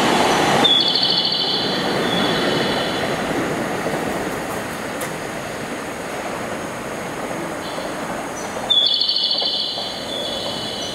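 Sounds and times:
electric train rumbling: 0.0s - 10.9s
train wheels squealing on rails: 0.6s - 3.3s, 7.6s - 10.9s.

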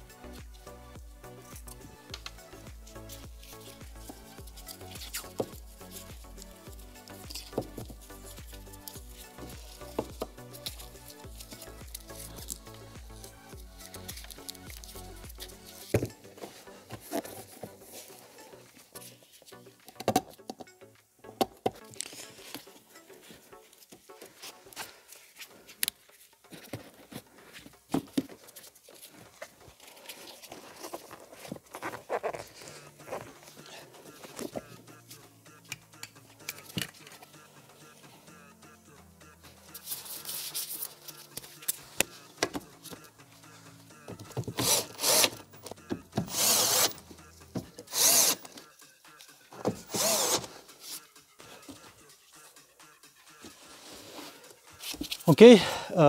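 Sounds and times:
carpet and cables rustling: 1.5s - 19.6s, 21.8s - 35.1s
cordless drill driving screws: 44.5s - 45.4s, 46.2s - 47.0s, 47.8s - 48.4s, 49.8s - 50.5s.

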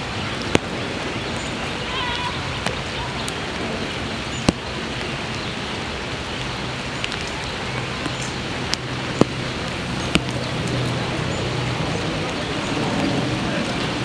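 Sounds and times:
drops ticking nearby: 0.0s - 14.0s
steady rain hiss: 0.0s - 14.0s.

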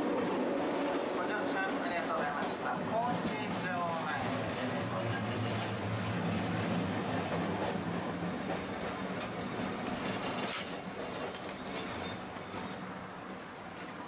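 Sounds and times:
streetcar motor hum and wheel rumble: 0.0s - 14.0s
short high wheel squeal: 10.5s - 12.2s.

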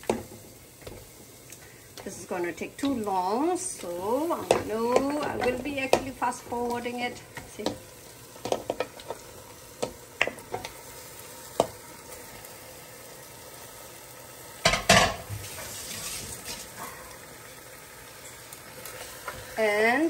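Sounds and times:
spice paste sizzling: 0.0s - 20.0s
meat pieces knocking into pot: 4.4s - 6.2s, 8.4s - 9.0s.

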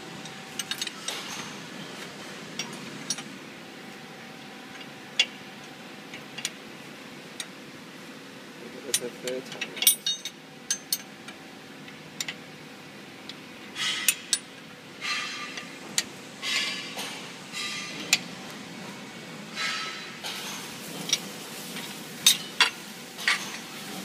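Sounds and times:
metallic clinks and knocks: 8.9s - 11.1s.

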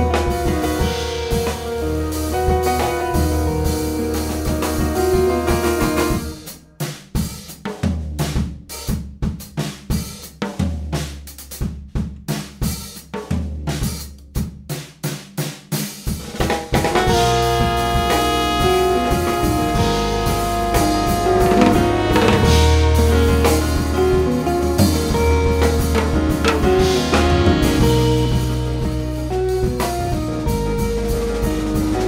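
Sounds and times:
low bass notes: 0.0s - 6.6s, 16.8s - 32.0s
jazz band playing held notes: 0.0s - 8.5s, 14.7s - 32.0s
drum kit hits: 0.0s - 14.1s, 14.7s - 32.0s.

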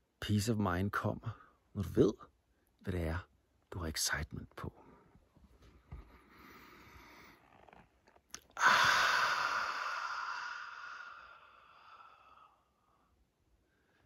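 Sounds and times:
in-breath: 5.9s - 7.4s, 8.6s - 14.0s
man exhaling deeply: 8.5s - 13.1s.

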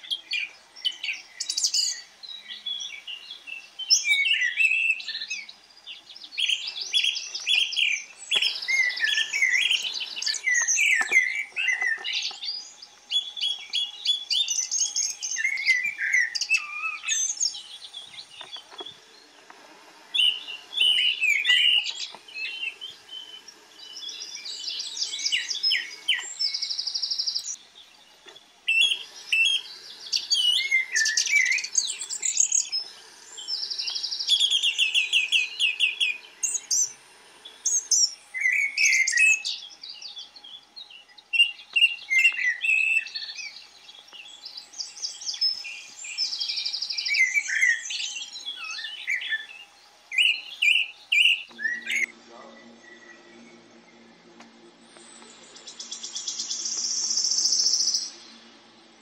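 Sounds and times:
high buzzy bird trill: 0.0s - 19.4s, 20.0s - 59.0s
songbirds chirping: 0.0s - 59.0s.

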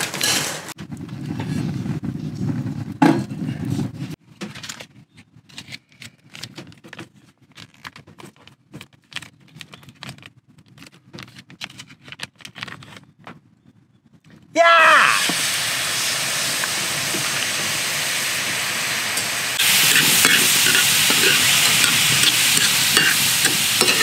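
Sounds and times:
plastic snack bag crinkling: 7.5s - 13.0s.

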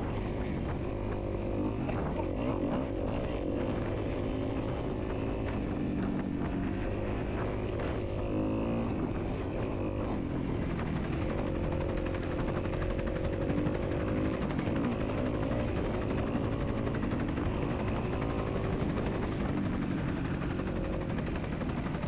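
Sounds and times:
motor running: 0.0s - 22.0s.

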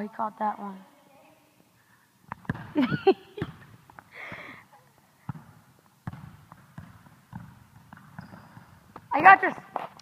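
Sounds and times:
soccer ball kicked and bouncing: 2.3s - 10.0s
sneakers squeaking on gym floor: 5.2s - 10.0s.

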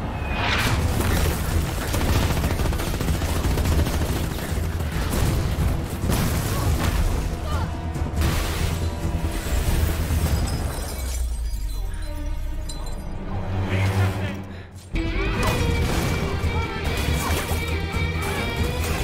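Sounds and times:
rapid gunfire: 0.8s - 7.1s
orchestral score: 11.4s - 19.0s.

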